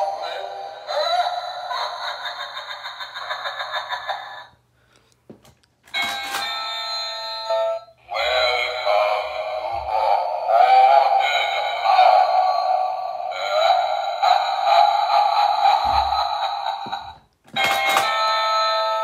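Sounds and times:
ding-dong doorbell chime: 0:06.0 - 0:08.0, 0:17.6 - 0:19.0.

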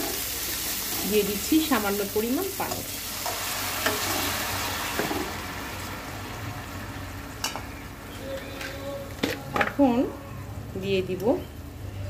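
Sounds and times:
water sizzling in hot oil: 0:00.0 - 0:07.5.

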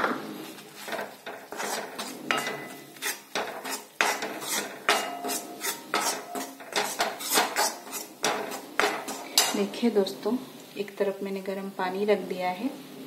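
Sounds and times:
steel spoon scraping a pan: 0:00.6 - 0:10.0.

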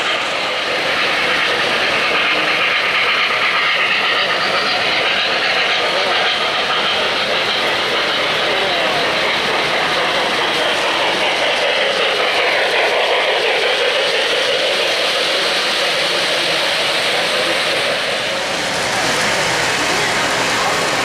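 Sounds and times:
model trains rumbling on track: 0:00.0 - 0:21.0.

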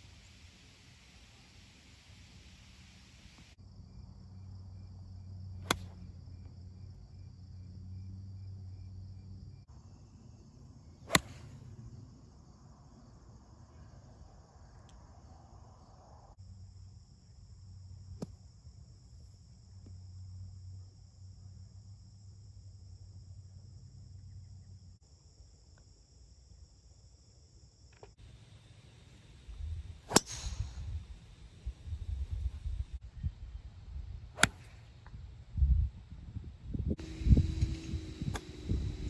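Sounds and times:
crickets chirring: 0:03.5 - 0:39.0
golf club striking ball: 0:05.6 - 0:06.0, 0:11.1 - 0:11.5, 0:30.1 - 0:31.0, 0:34.4 - 0:34.7.

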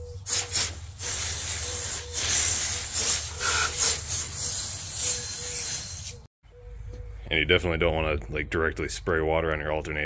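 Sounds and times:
hose spraying water: 0:00.2 - 0:06.2.

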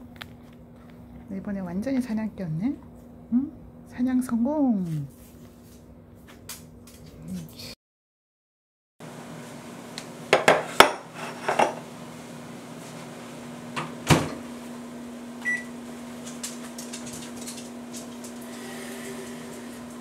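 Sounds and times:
kitchen appliance humming: 0:09.0 - 0:20.0.

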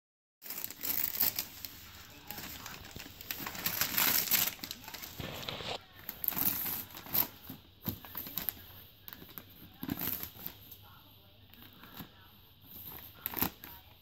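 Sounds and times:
wrapping paper crinkling and tearing: 0:00.4 - 0:10.7, 0:12.7 - 0:13.7.

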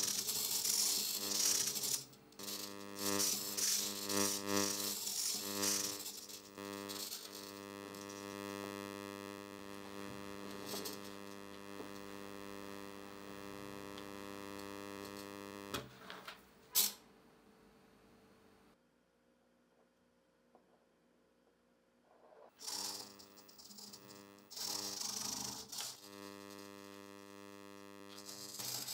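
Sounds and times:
electrical buzz: 0:00.0 - 0:15.9, 0:22.5 - 0:28.9.

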